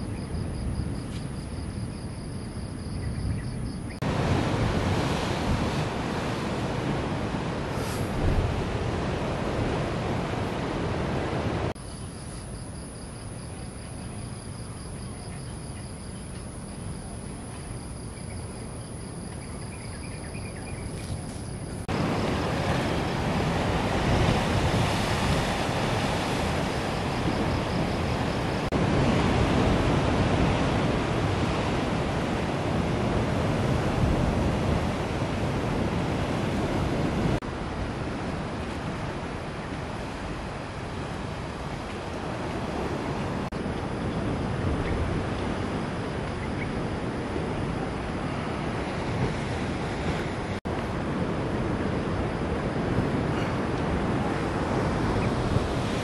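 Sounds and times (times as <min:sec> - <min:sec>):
sea surf breaking against rocks: 0:04.0 - 0:11.8, 0:21.8 - 0:56.0.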